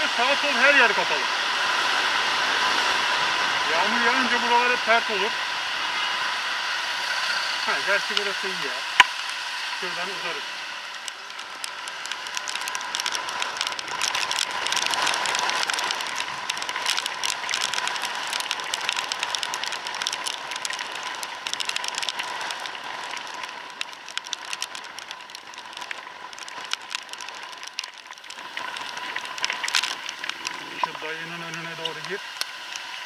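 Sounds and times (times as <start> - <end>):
wind and spray on microphone: 9.8 - 27.5
fine crackling: 9.8 - 33.0.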